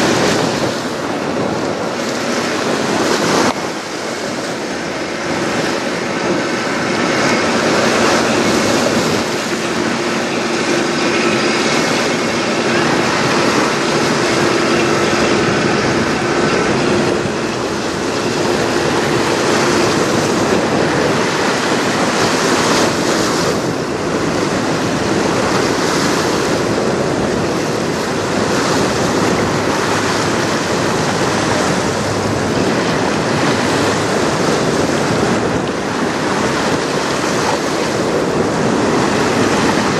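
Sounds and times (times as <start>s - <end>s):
faint ship machinery hum: 0.0s - 39.9s
river water rushing: 0.0s - 39.9s
wind on microphone: 0.0s - 39.9s.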